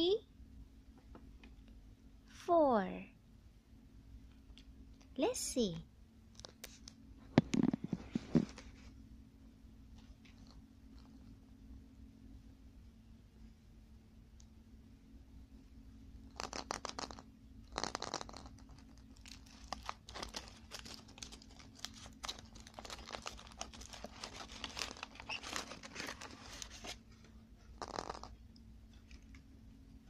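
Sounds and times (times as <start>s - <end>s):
foil wrapper crinkling: 17.8s - 27.0s.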